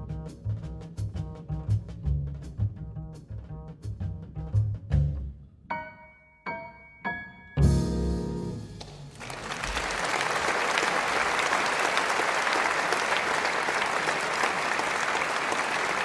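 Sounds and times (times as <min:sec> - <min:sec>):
jazz piano trio chord: 0:07.6 - 0:08.8
audience applauding: 0:08.8 - 0:16.0.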